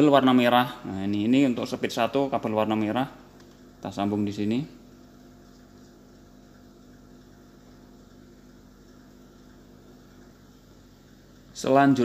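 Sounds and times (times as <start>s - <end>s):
low hum and hiss: 0.0s - 12.0s.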